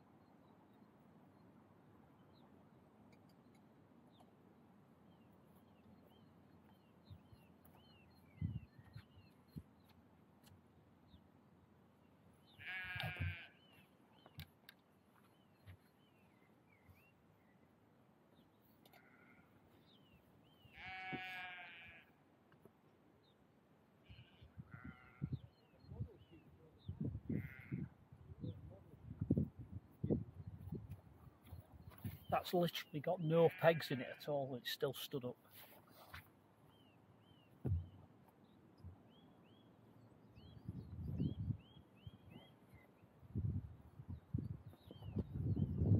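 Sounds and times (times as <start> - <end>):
bird chirping: 5.1 - 10.0, 44.2 - 45.9
sheep bleating: 12.6 - 13.6, 20.7 - 22.1, 24.1 - 25.3, 27.3 - 27.9, 33.4 - 34.3
faint bird calls: 18.8 - 22.1.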